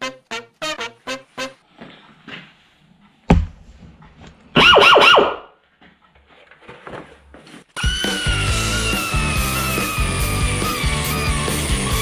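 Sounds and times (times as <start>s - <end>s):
rock music: 7.8s - 12.0s.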